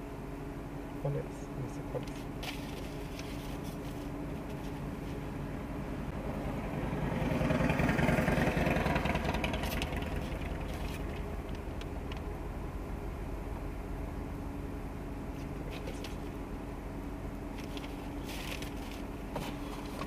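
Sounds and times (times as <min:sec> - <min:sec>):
car engine idling: 0:00.0 - 0:20.0
motorcycle passing: 0:06.0 - 0:11.6.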